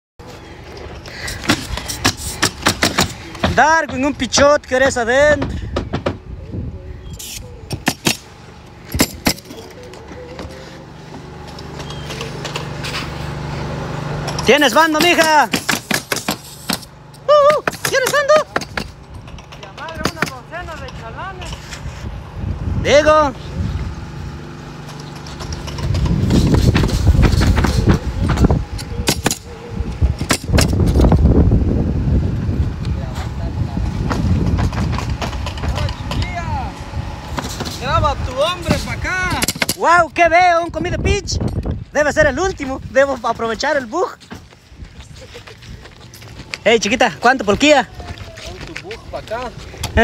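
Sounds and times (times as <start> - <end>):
nail gun firing: 1.5 - 3.6, 7.7 - 8.3, 8.9 - 9.5, 15.0 - 16.9, 29.0 - 29.5, 30.2 - 30.8, 39.4 - 39.8
footsteps on roof deck: 41.7 - 50.0.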